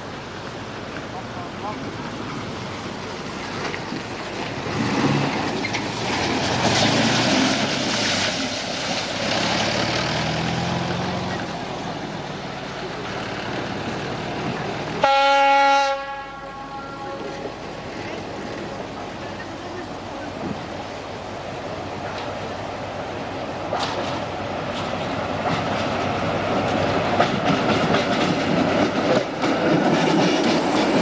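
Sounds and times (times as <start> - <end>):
diesel train engine and wheels: 0.0 - 31.0
train horn blast: 15.0 - 17.6.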